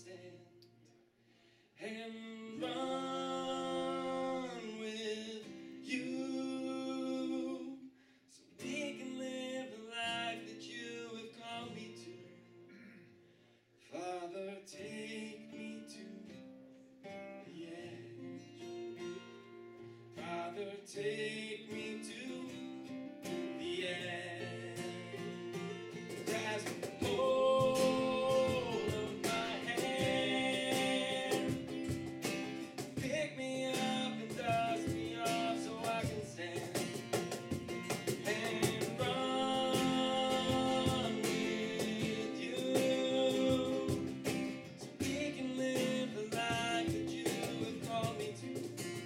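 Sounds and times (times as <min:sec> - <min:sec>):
strummed acoustic guitars: 0:01.3 - 0:49.0
men singing: 0:01.8 - 0:05.0, 0:23.6 - 0:25.4, 0:26.1 - 0:48.5.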